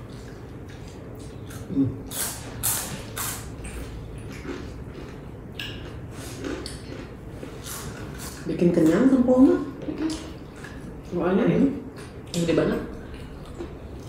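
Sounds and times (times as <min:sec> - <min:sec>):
people chewing crunchy snacks: 0:00.0 - 0:11.1, 0:11.9 - 0:14.0.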